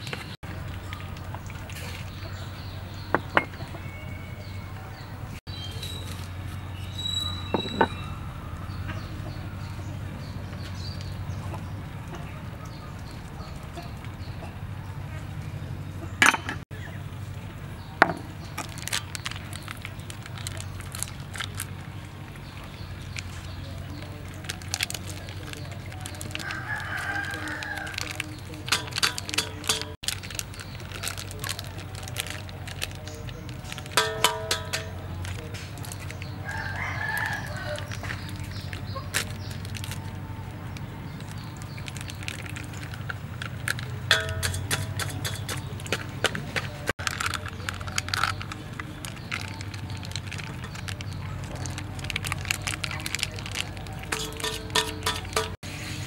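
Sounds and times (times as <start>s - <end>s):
plastic sachet crinkling: 18.5s - 55.6s
rooster crowing: 26.4s - 28.1s, 36.4s - 37.9s.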